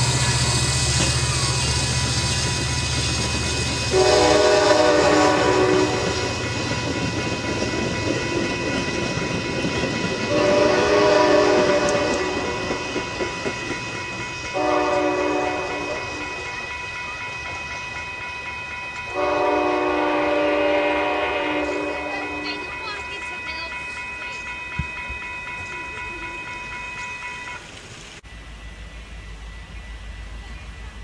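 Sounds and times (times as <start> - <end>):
passing train rumble: 0.0 - 31.0
locomotive horn blasts: 3.9 - 6.3, 10.3 - 12.8, 14.5 - 16.6, 19.1 - 22.9.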